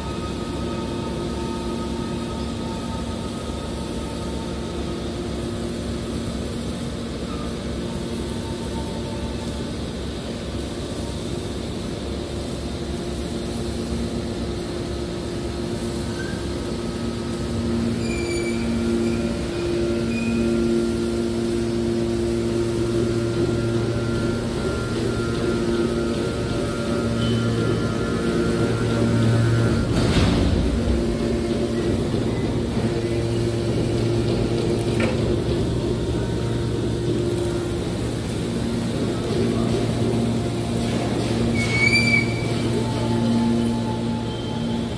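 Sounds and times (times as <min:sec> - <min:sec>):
hydraulic power unit humming: 0:00.0 - 0:44.9
brief high squeal: 0:16.1 - 0:16.5, 0:17.9 - 0:20.7, 0:41.4 - 0:44.9.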